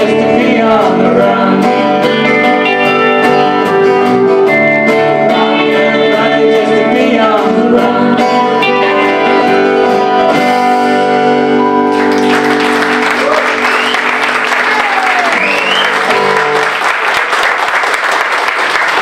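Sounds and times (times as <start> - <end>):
person singing: 0.0 - 4.1, 5.0 - 10.5
strummed acoustic guitar: 0.0 - 12.2
bass guitar: 0.0 - 16.8
audience applause: 11.9 - 19.0.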